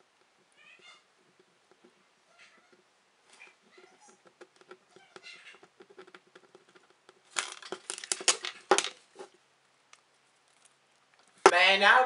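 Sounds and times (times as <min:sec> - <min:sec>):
tape crinkling: 0:05.9 - 0:09.3.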